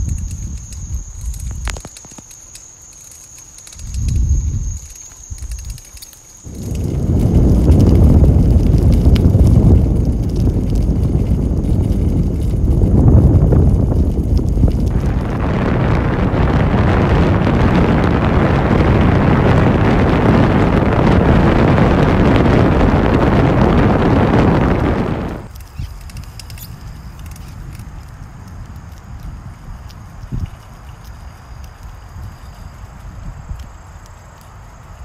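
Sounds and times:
faint clicks: 0.0s - 13.2s, 25.4s - 35.0s
quiet rustle: 0.0s - 15.4s, 25.3s - 35.0s
wind buffeting microphone: 0.0s - 35.0s.

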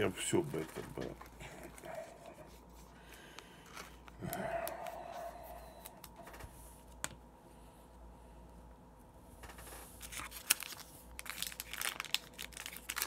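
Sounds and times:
card stock clicks and rustles: 0.0s - 5.0s, 9.4s - 13.0s
soft breathy sound: 1.4s - 6.6s.

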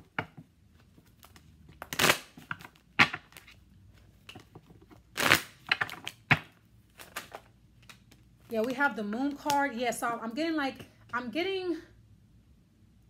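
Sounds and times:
cards being shuffled: 0.8s - 8.8s.

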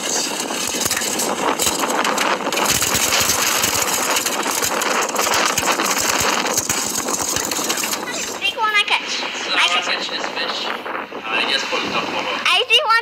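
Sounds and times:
knocks and rattles on boat: 0.0s - 8.4s
choppy water: 0.0s - 13.0s
wind: 0.0s - 13.0s.

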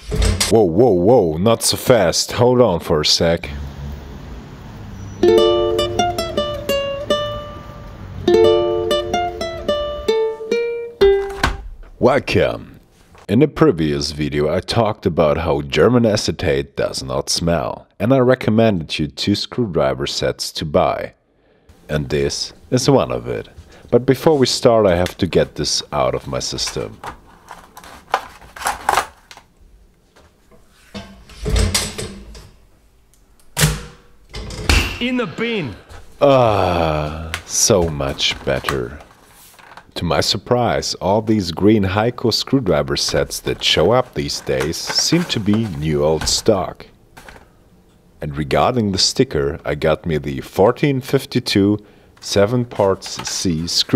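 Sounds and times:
plucked string tune: 5.2s - 11.6s.

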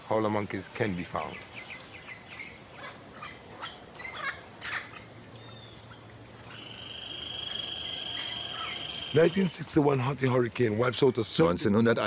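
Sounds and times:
high insect whine: 0.0s - 11.5s
short bird calls: 1.6s - 9.4s
loud insect buzz: 1.7s - 9.6s.

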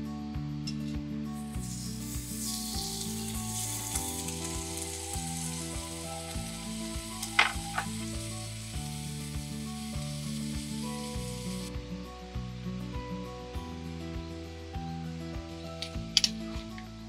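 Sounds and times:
beef sizzling in a pot: 1.4s - 11.8s.

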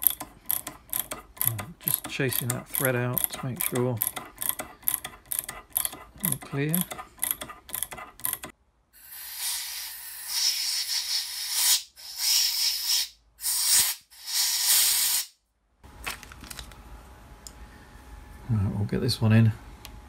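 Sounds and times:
compressed air blow gun hissing: 9.0s - 15.3s.

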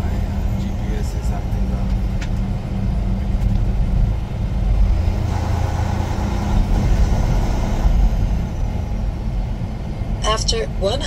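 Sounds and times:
truck diesel engine running: 0.0s - 11.0s
tyre and road noise: 0.0s - 11.0s.

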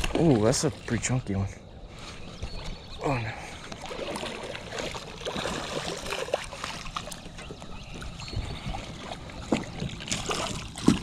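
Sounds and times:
fish splashing at water surface: 3.8s - 7.4s, 9.5s - 11.0s.

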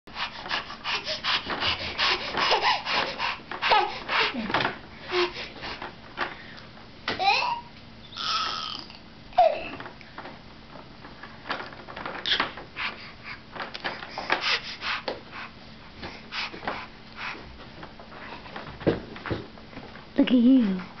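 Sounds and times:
baby squealing and babbling: 7.2s - 9.7s.

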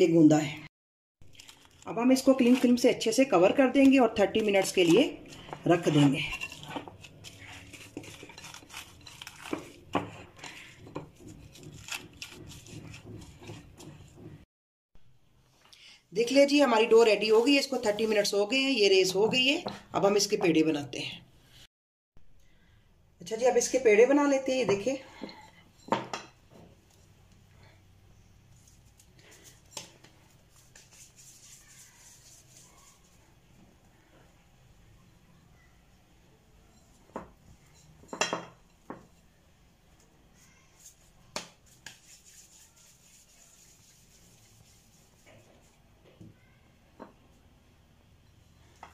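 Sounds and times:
plastic rustling: 1.2s - 2.9s
cling film rubbed on bowl: 6.2s - 13.9s, 28.5s - 33.4s, 40.4s - 45.8s
hands patting dough: 40.8s - 45.7s.

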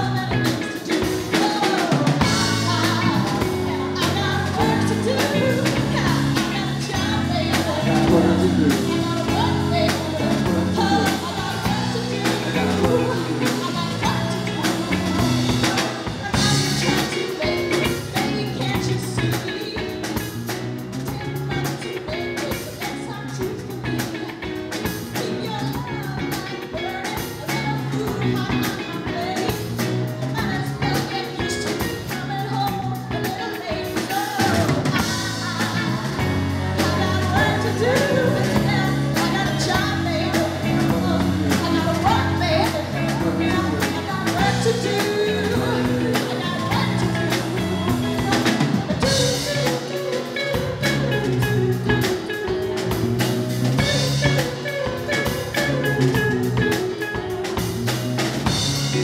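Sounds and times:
drum kit: 0.0s - 59.0s
electric bass: 0.0s - 59.0s
electric guitar: 0.0s - 59.0s
woman singing lead vocal: 0.0s - 59.0s
organ: 1.7s - 18.1s.

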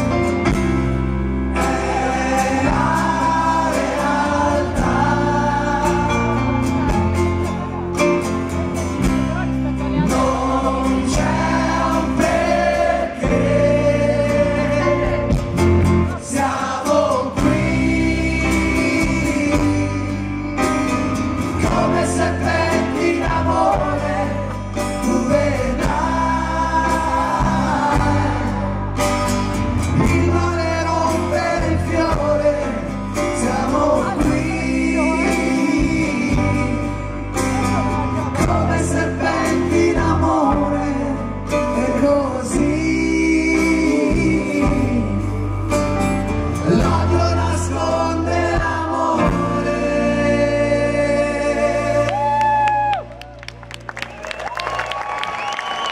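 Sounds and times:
live rock band playing: 0.0s - 52.5s
person singing: 1.6s - 46.0s, 46.6s - 53.1s.

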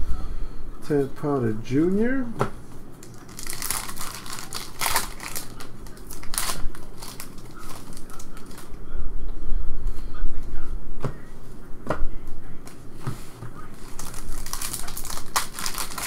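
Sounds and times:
foil wrapper tearing: 3.1s - 8.7s, 13.8s - 16.0s
cards being handled: 12.6s - 16.0s.

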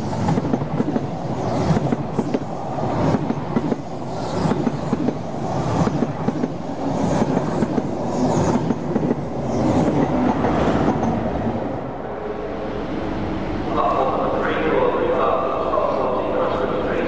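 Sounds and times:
diesel locomotive passing: 0.0s - 17.0s.

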